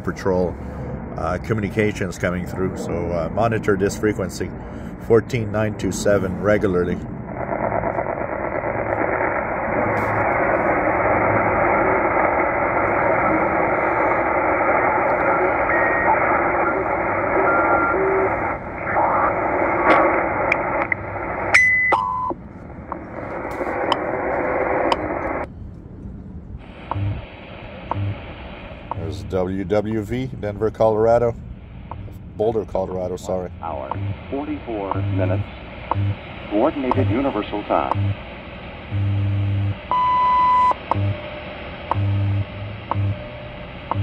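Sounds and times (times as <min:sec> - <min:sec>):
radio band noise: 0:00.0 - 0:21.5, 0:22.1 - 0:25.5, 0:26.6 - 0:44.0
radio hiss: 0:01.2 - 0:21.5, 0:22.2 - 0:25.5, 0:26.6 - 0:44.0
radio whistles and clicks: 0:07.5 - 0:25.5, 0:26.8 - 0:27.2, 0:27.8 - 0:28.2, 0:33.9 - 0:34.2, 0:34.8 - 0:36.2, 0:36.8 - 0:38.2, 0:39.0 - 0:44.0
faint time signal ticks: 0:26.9 - 0:27.2, 0:31.9 - 0:32.2, 0:33.9 - 0:34.2, 0:34.8 - 0:36.2, 0:36.9 - 0:37.2, 0:41.9 - 0:42.2.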